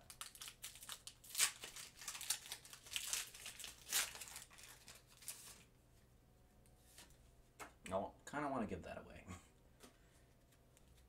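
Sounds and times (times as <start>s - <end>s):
foil wrapper crinkling: 0.0s - 5.7s.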